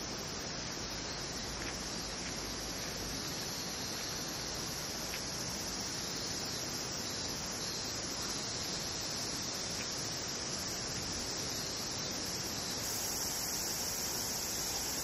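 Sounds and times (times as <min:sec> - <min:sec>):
insects buzzing: 0:00.0 - 0:15.0.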